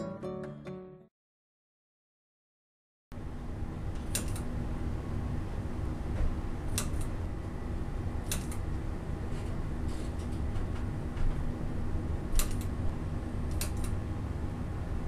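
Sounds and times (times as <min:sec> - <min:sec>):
steady low hum: 0:03.2 - 0:15.0.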